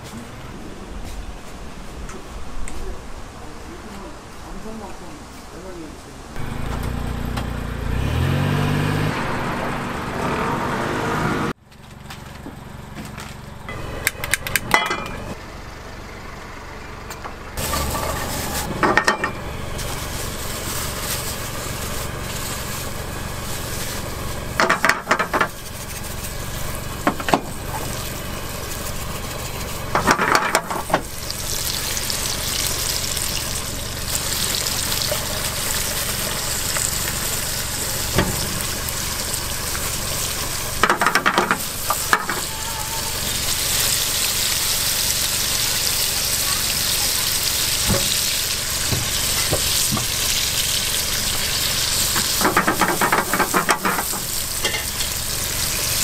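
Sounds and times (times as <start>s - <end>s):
motor humming: 6.4s - 10.5s
garlic sizzling in a frying pan: 17.6s - 56.0s.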